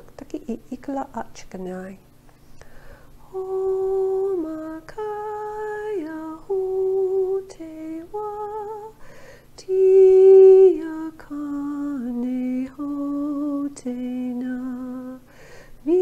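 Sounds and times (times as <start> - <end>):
woman singing wordless syllables: 3.2 - 9.0, 9.6 - 16.0.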